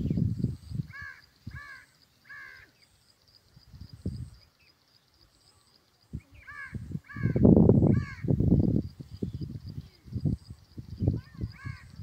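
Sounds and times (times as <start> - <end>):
wind buffeting microphone: 0.0 - 1.6, 3.6 - 4.4, 6.1 - 12.0
crow cawing: 0.9 - 2.7, 6.4 - 8.3, 11.6 - 11.9.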